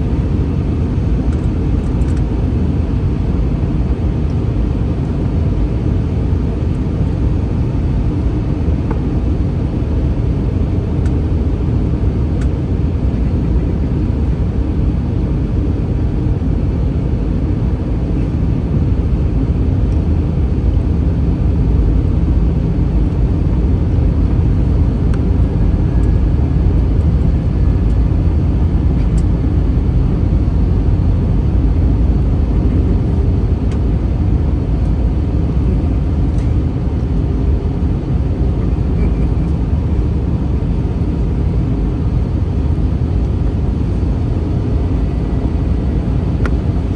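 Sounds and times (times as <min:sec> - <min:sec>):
airliner cabin rumble: 0:00.0 - 0:46.9.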